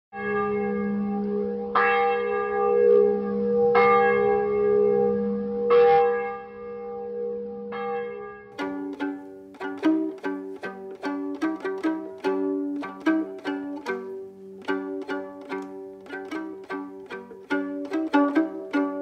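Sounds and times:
church bell tolling: 0.2s - 8.9s.

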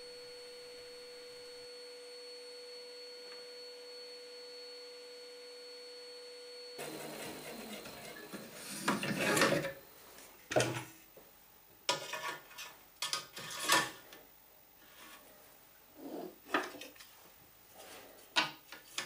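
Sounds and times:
steady hum: 0.0s - 11.8s
rubbing and scraping on metal: 6.8s - 9.8s, 11.9s - 14.1s.

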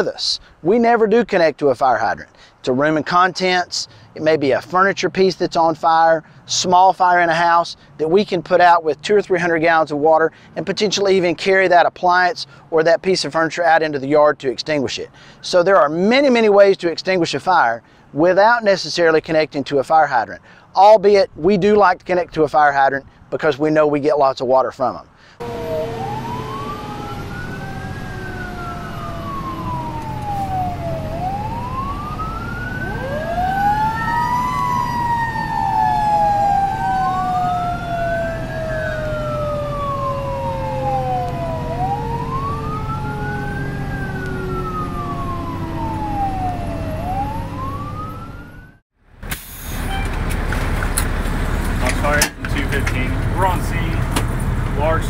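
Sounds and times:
road noise: 0.0s - 55.0s
truck engine rumbling: 25.3s - 55.0s
fire engine siren wailing: 25.4s - 48.8s
lower siren tone: 25.4s - 48.8s.

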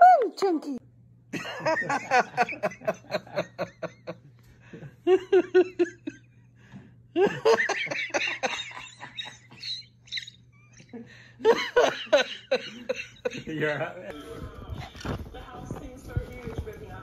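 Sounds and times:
person giggling: 1.4s - 6.3s, 7.1s - 13.6s.

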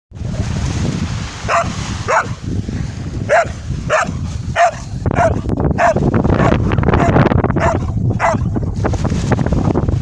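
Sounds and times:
dog barking: 1.4s - 2.4s, 3.3s - 8.5s.

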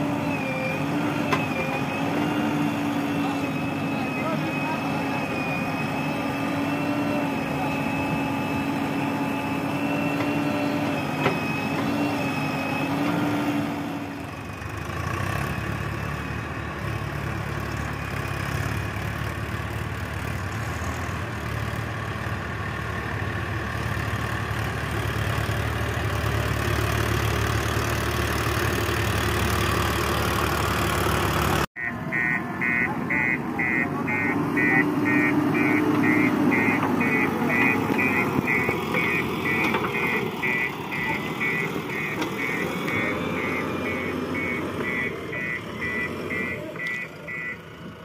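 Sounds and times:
diesel engines running: 0.0s - 48.0s.

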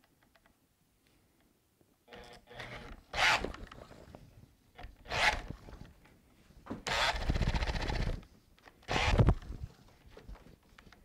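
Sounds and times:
drill boring into wood: 2.2s - 3.5s, 6.9s - 8.2s, 8.9s - 9.3s.

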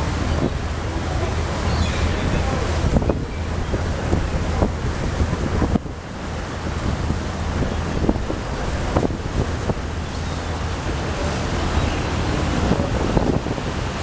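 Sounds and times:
waves washing: 0.0s - 14.0s
wind buffeting microphone: 0.0s - 14.0s.

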